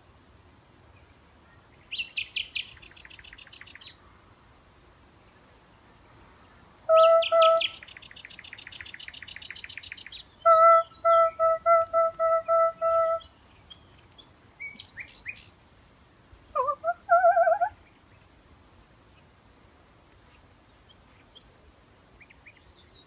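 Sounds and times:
nightingale singing: 0:01.0 - 0:04.0, 0:06.8 - 0:15.6.

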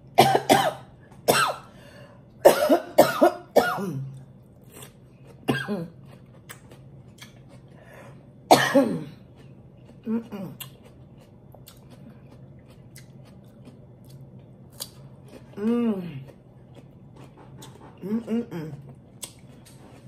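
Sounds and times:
woman coughing: 0:00.2 - 0:01.7, 0:02.4 - 0:04.1, 0:05.5 - 0:06.0, 0:08.5 - 0:09.2.

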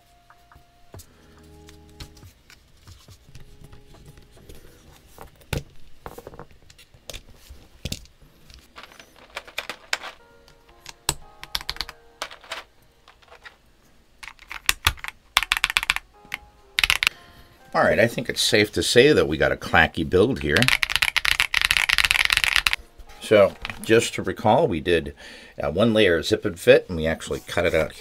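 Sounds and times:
soft background music: 0:00.0 - 0:06.1, 0:08.6 - 0:13.8, 0:14.7 - 0:28.0
keyboard keystrokes: 0:10.8 - 0:12.6, 0:14.2 - 0:16.0, 0:16.8 - 0:17.1.

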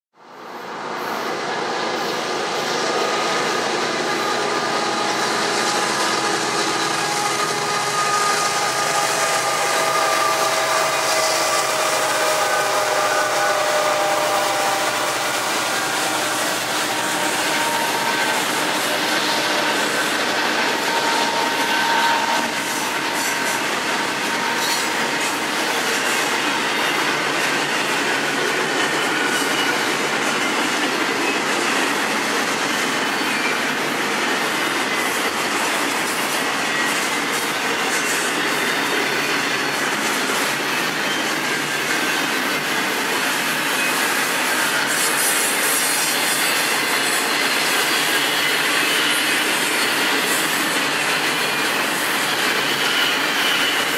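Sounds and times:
train wheels rolling on rails: 0:00.2 - 0:53.9
wheels squealing: 0:36.7 - 0:53.9.

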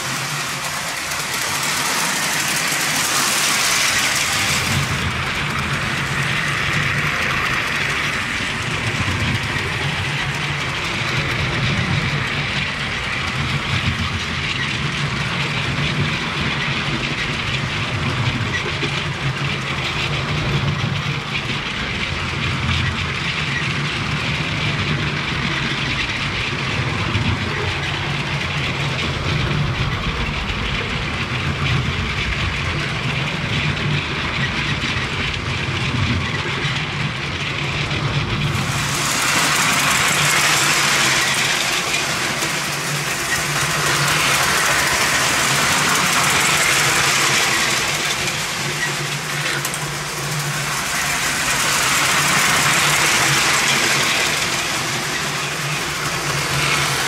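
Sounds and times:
toy train motor hum: 0:00.0 - 0:57.0
wheels rattling on rails: 0:00.0 - 0:57.0.

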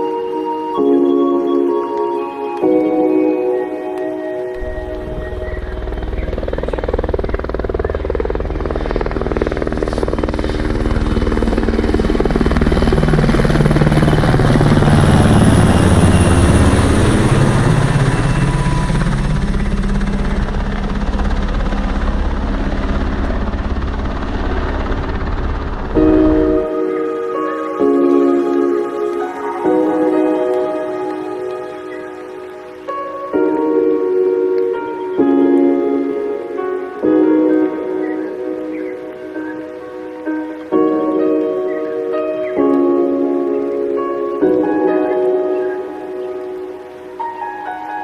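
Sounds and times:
helicopter rotor chopping: 0:04.6 - 0:33.0.

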